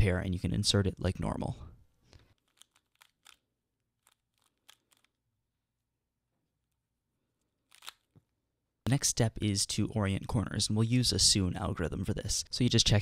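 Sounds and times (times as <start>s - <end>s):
puzzle cube plastic clicks: 2.2s - 5.2s, 7.6s - 8.1s.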